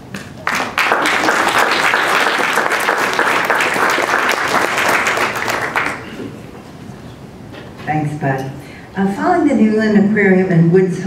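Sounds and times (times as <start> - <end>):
audience applauding: 0.4 - 6.4.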